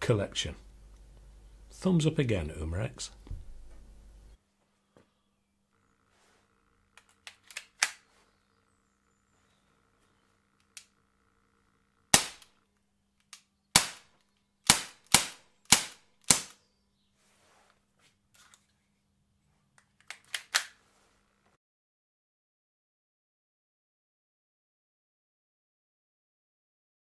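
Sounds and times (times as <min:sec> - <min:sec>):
magazine clicks: 0:07.0 - 0:08.1, 0:12.1 - 0:12.6, 0:13.2 - 0:16.6, 0:19.9 - 0:20.8
air pistol shots: 0:12.1 - 0:12.5, 0:13.7 - 0:16.6.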